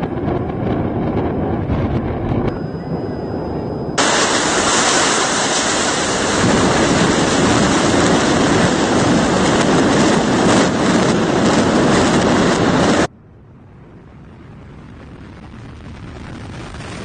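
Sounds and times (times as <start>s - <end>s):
building collapsing rushing noise: 4.0s - 13.1s, 14.0s - 17.0s.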